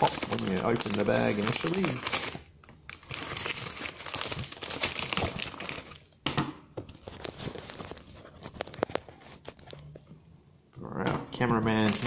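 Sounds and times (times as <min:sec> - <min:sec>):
plastic bag crinkling: 0:00.0 - 0:06.2, 0:07.0 - 0:10.0, 0:11.7 - 0:12.0.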